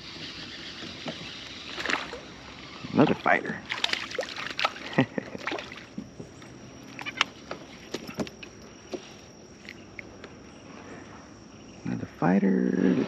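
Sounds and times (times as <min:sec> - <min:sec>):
fish splashing at surface: 0:03.7 - 0:05.9.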